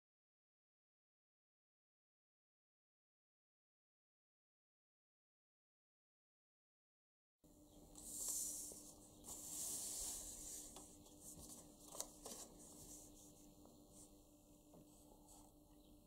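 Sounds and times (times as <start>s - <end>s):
paper rustling on wooden table: 8.0s - 13.3s.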